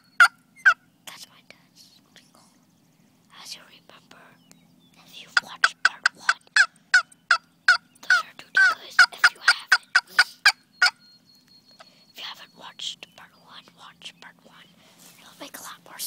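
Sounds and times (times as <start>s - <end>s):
turkey gobbling: 0.0s - 0.8s, 5.3s - 11.0s
faint low hum: 0.0s - 16.0s.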